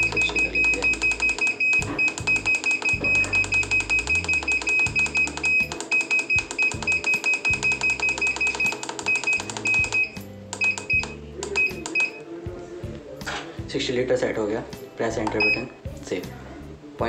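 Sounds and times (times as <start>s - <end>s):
background music with bass line: 0.0s - 5.8s, 6.4s - 17.0s
rapid electronic beeps: 0.0s - 12.2s, 15.3s - 15.8s.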